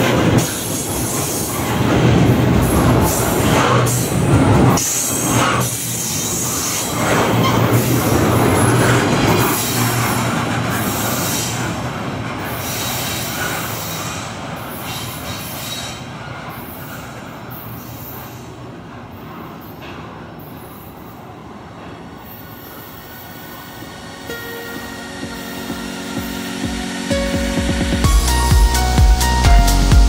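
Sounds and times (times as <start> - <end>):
freight train rolling on rails: 0.0 - 30.0
music: 24.3 - 30.0.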